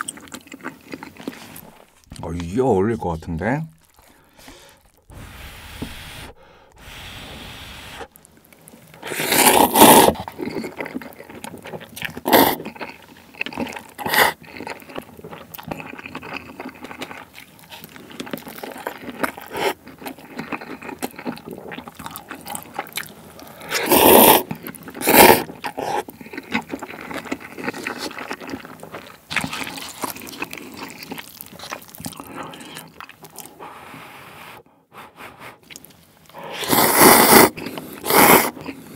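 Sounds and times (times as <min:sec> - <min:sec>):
wet chewing: 0:00.0 - 0:02.5, 0:03.3 - 0:33.8, 0:35.6 - 0:38.9
person slurping noodles: 0:04.3 - 0:08.2, 0:09.0 - 0:11.2, 0:12.0 - 0:12.8, 0:20.6 - 0:26.4, 0:32.1 - 0:38.9.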